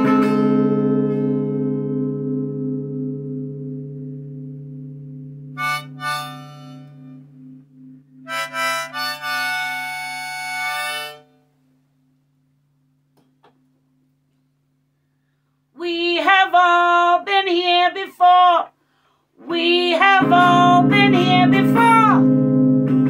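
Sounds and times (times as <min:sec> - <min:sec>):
strummed electric guitar: 0:00.0 - 0:11.2, 0:19.8 - 0:23.0
woman singing: 0:15.8 - 0:18.7, 0:19.4 - 0:22.3.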